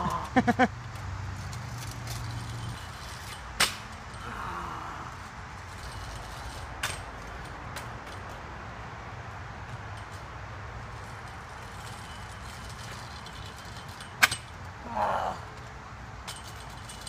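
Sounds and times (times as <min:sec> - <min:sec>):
scooter clacking on asphalt: 0:00.0 - 0:04.2, 0:05.2 - 0:14.8, 0:15.5 - 0:17.0.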